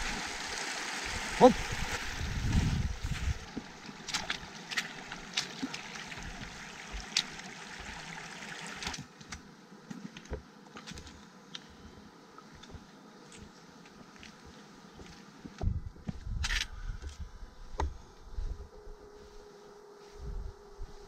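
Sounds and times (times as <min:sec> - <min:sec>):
stream trickling over rocks: 0:00.0 - 0:09.1.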